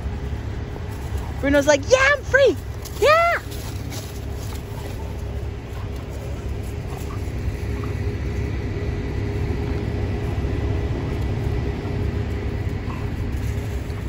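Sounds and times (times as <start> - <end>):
faint constant hum: 0.0 - 14.0
low rumble: 0.0 - 14.0.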